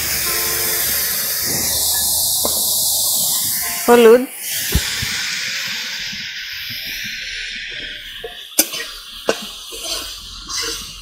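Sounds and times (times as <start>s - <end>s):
leaves sizzling in hot oil: 0.0s - 11.0s.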